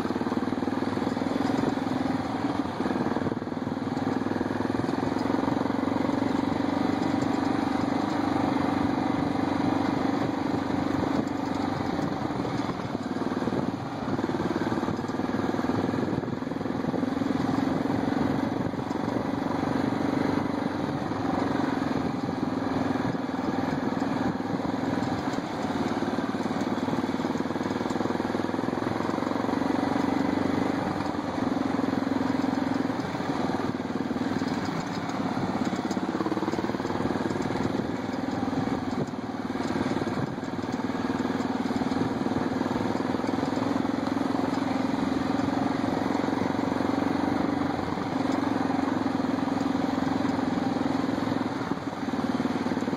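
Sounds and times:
atv engine running steadily: 0:00.0 - 0:52.9.

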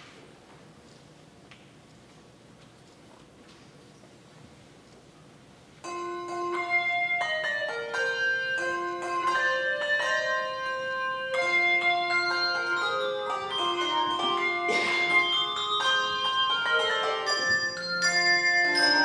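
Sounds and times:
handbell choir ringing chords: 0:05.8 - 0:19.0.

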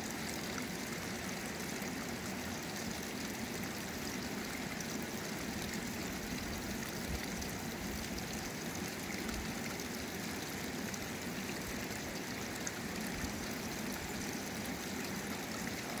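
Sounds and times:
water rushing down stony stream: 0:00.0 - 0:16.0.

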